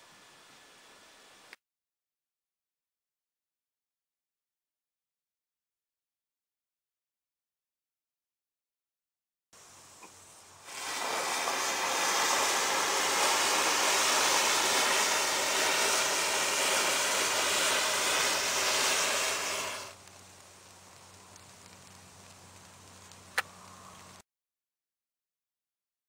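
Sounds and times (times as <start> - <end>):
matches igniting with a hiss: 9.6 - 24.2.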